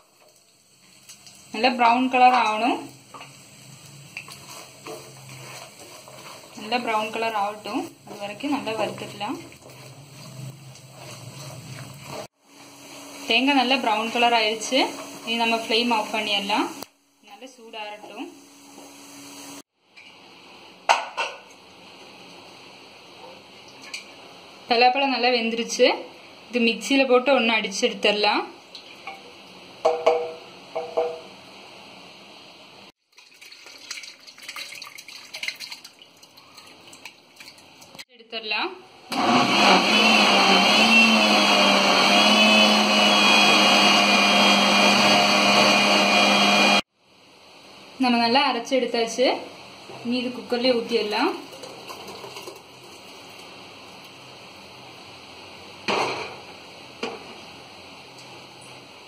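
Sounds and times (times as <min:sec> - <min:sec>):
wooden spoon knocking on pot: 0:29.8 - 0:31.2
liquid pouring and splashing: 0:33.0 - 0:38.0, 0:51.4 - 0:53.5.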